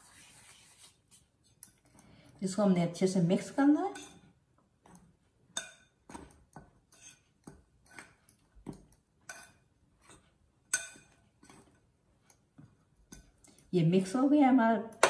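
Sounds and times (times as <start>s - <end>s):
metal spoon clinking glass bowl: 4.9s - 11.8s.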